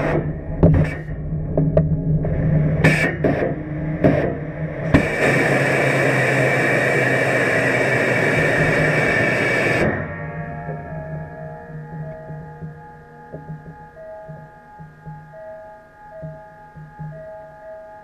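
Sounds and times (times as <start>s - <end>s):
low cabin hum: 0.0s - 18.0s
thruster puffs and hiss: 4.9s - 9.8s.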